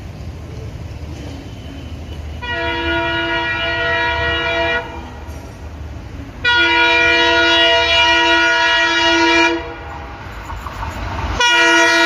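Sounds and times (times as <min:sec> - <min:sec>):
locomotive air horn blasts: 0:01.5 - 0:05.3, 0:06.4 - 0:10.0, 0:11.3 - 0:12.0.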